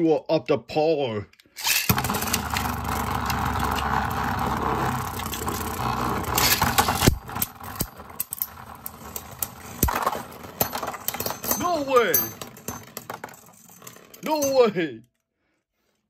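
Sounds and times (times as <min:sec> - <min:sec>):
spinning top whirring: 0:01.6 - 0:11.1.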